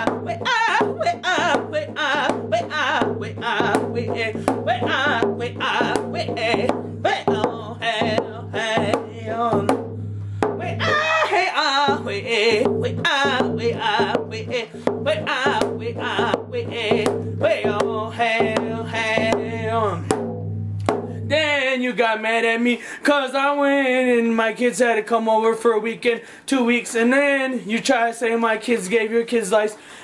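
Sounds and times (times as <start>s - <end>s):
man singing vocables: 0.0s - 20.2s, 21.2s - 30.0s
frame hand drum beating: 0.0s - 21.6s.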